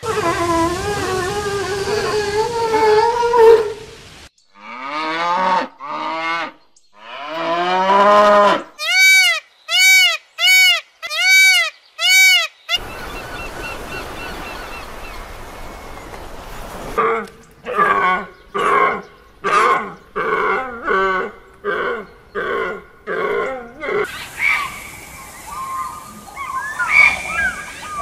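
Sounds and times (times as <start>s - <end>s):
sea lions calling: 0.0s - 4.0s, 16.9s - 28.0s
water noise: 0.0s - 4.8s, 12.8s - 28.0s
peafowl calls: 8.8s - 15.4s, 24.1s - 28.0s
surf: 12.8s - 17.0s.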